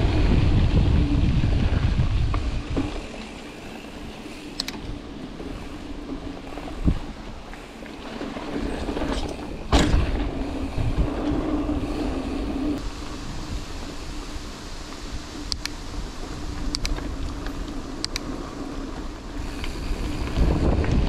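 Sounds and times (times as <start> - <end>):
wind buffeting microphone: 0.0 - 7.7, 8.4 - 14.4, 19.0 - 21.0
bike tyre rumble and rattle: 0.0 - 21.0
bike hitting bumps: 8.2 - 12.7.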